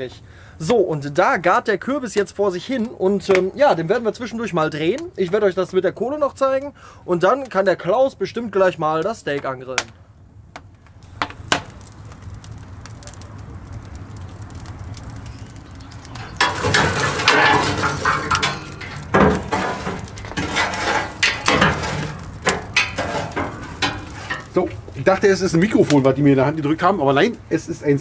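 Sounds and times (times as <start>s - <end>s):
fire crackling and popping: 0.0s - 28.0s
poker scraping embers: 10.6s - 27.3s.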